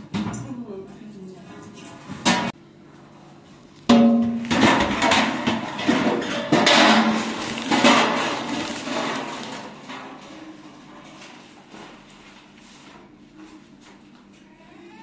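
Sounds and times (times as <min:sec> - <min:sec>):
metal tray clanging: 0:03.9 - 0:11.1
tray clattering: 0:03.9 - 0:11.4.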